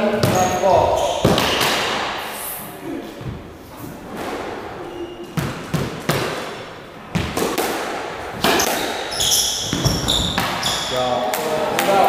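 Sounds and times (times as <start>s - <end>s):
squash ball cracks echoing: 0.0s - 2.3s, 5.4s - 12.0s.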